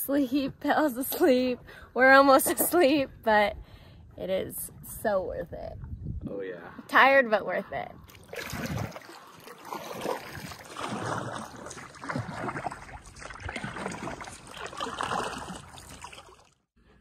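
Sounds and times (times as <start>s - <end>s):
kayak paddles splashing in water: 8.1s - 16.6s.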